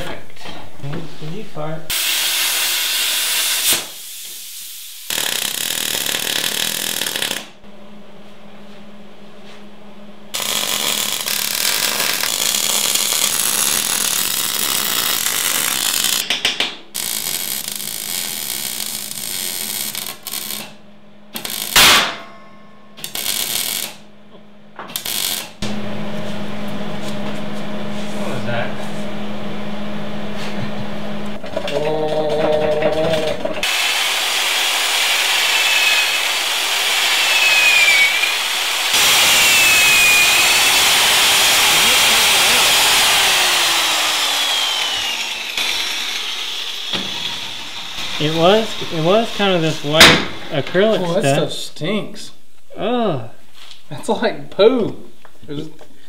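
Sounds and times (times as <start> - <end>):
plasma cutter hissing: 1.9 - 6.5, 45.5 - 50.4
arc welding crackling: 1.9 - 7.6, 10.3 - 16.3, 16.9 - 22.2, 23.0 - 24.1, 24.9 - 25.7, 33.1 - 50.9
steady low hum: 7.6 - 13.5.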